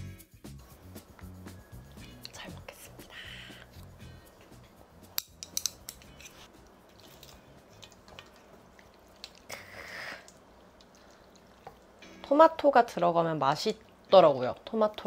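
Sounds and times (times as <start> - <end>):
chopsticks clicking in a bowl: 4.6 - 6.3.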